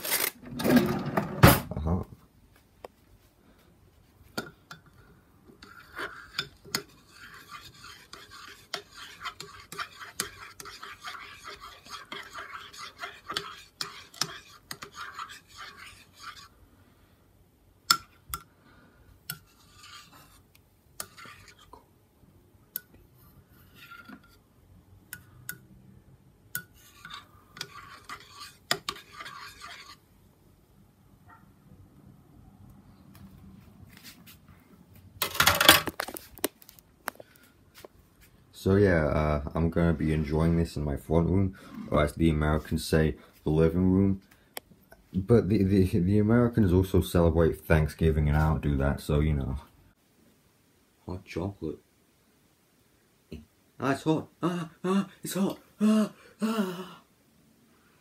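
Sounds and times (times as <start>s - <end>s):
spoon scraping inside mug: 5.5s - 16.5s, 19.3s - 20.4s, 21.0s - 21.7s, 23.6s - 24.4s, 26.6s - 30.0s
cutlery clattering: 35.2s - 36.0s.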